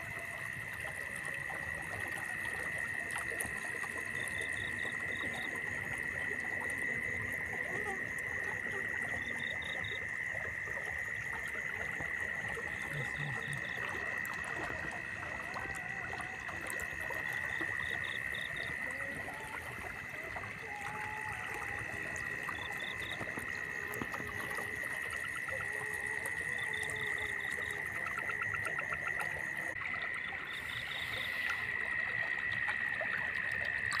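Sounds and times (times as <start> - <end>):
frogs croaking: 0.0 - 34.0
high-pitched insect drone: 0.0 - 34.0.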